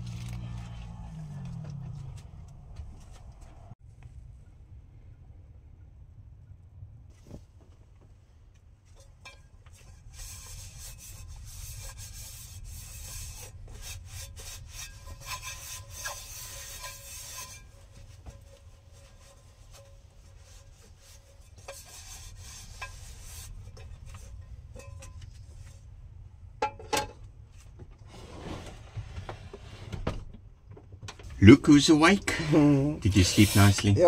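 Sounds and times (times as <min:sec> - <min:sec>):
dishes being scrubbed: 0:09.2 - 0:25.2.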